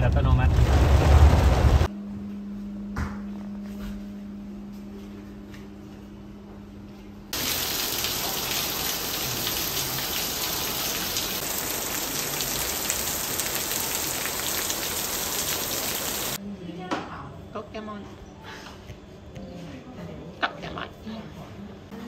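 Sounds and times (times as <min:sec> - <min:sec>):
hiss of falling water: 0:07.4 - 0:16.4.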